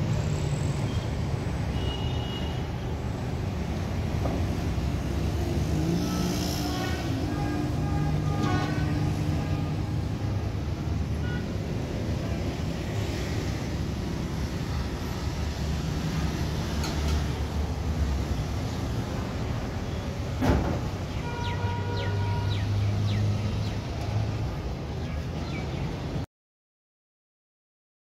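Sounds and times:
traffic rumble: 0.0s - 26.2s
vehicle engine close by: 4.3s - 11.0s.

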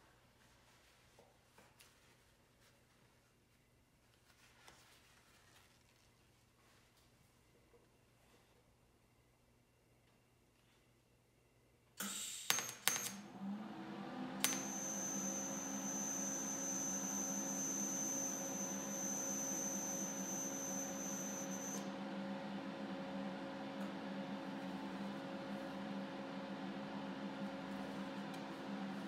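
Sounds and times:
welding arc high-pitched whine: 14.4s - 21.8s
welder low hum: 14.4s - 29.0s.

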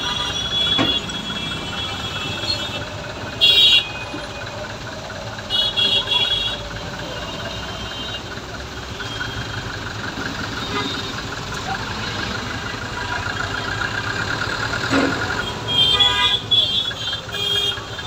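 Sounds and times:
vehicle horn blaring: 0.0s - 4.0s, 5.5s - 6.6s, 10.6s - 11.2s, 15.4s - 18.0s
street traffic: 0.0s - 18.0s
vehicle engine running: 0.0s - 18.0s.

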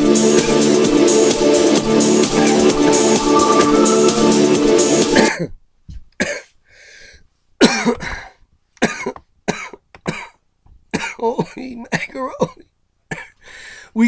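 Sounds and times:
electronic dance music: 0.0s - 5.3s
man coughing and clearing throat: 6.2s - 6.5s, 7.6s - 10.4s, 11.0s - 13.4s.

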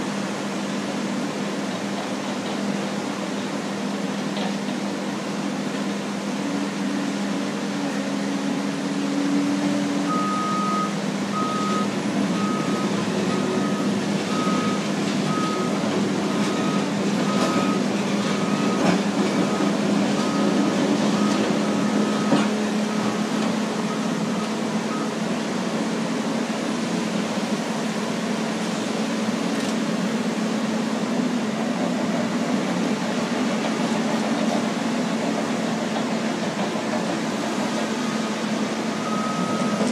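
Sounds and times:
diesel engines humming: 0.0s - 39.9s
reversing alarm beeping: 10.0s - 25.4s, 37.9s - 39.9s.

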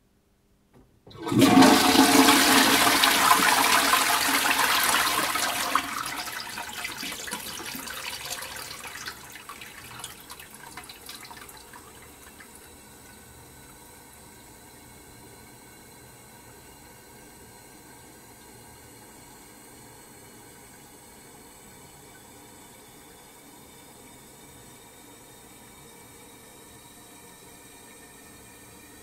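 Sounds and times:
toilet flushing: 1.1s - 16.9s.

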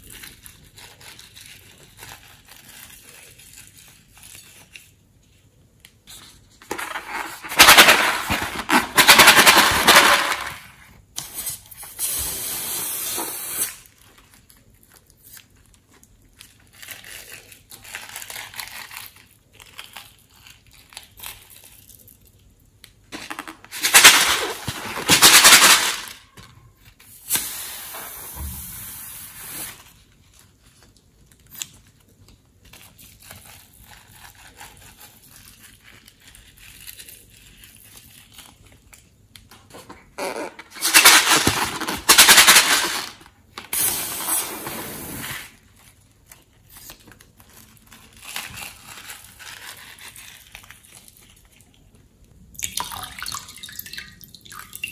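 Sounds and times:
glitter rattling in plastic shakers: 6.7s - 10.9s, 23.1s - 26.4s, 40.7s - 43.8s.

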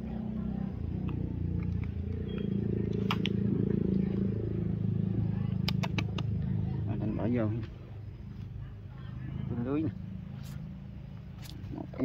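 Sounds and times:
sharp clicks: 5.6s - 6.3s.

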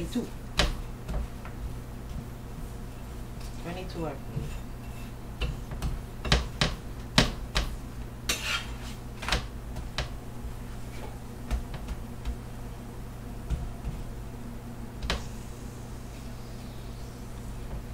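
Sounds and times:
metal spatula scraping on griddle: 4.4s - 5.2s, 8.2s - 9.0s.

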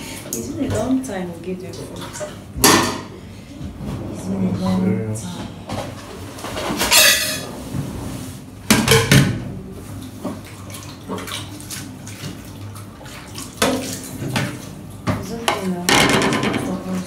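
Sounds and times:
dishes clattering: 2.6s - 3.2s, 6.6s - 7.5s, 8.7s - 9.4s, 13.6s - 17.0s.

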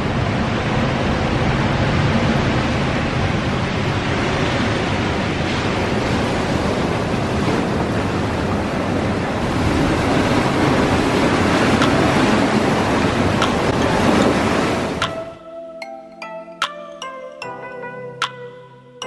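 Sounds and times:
surf washing over cobbles: 9.4s - 15.0s.

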